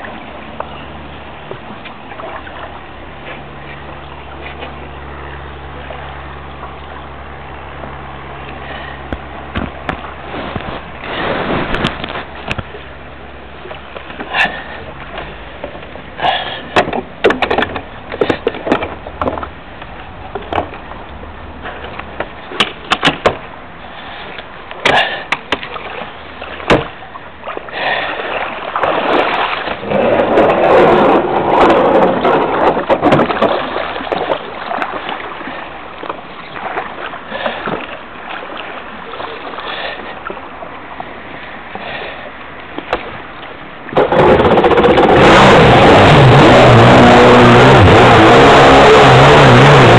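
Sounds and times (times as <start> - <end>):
water splashing against a hull: 0.0 - 47.4
knocks and bumps on a hull: 9.1 - 12.7, 16.7 - 21.0, 21.6 - 23.5, 24.8 - 27.0, 28.8 - 38.0.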